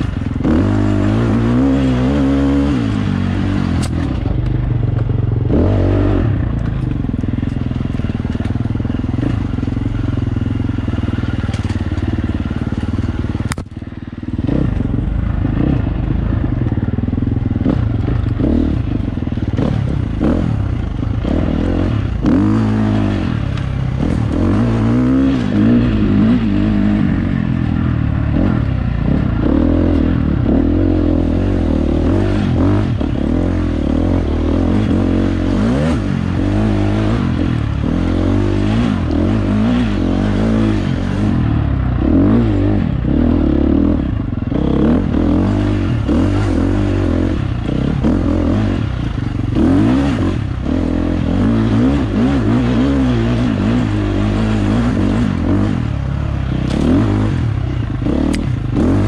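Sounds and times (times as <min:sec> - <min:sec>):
dirt bike engine revving: 0:00.0 - 0:59.0
clatter and knocks from bike: 0:11.4 - 0:13.8.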